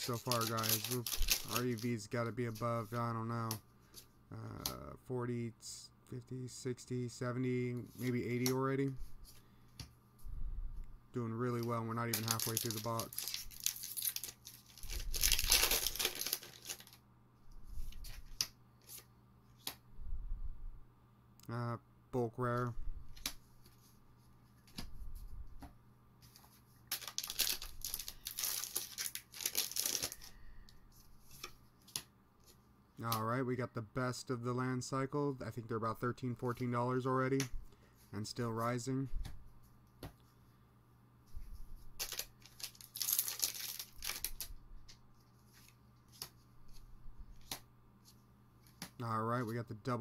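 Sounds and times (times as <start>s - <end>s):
foil wrapper crinkling and tearing: 0.0s - 2.0s, 11.6s - 17.0s, 26.9s - 30.3s, 42.0s - 44.5s
cards rustling: 0.0s - 4.7s, 11.3s - 17.0s, 26.2s - 33.2s, 41.7s - 49.7s.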